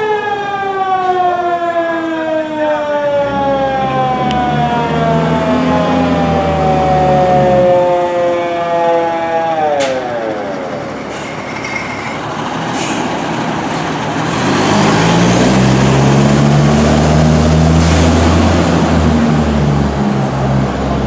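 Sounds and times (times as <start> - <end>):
diesel engine driving past: 9.9 - 21.0.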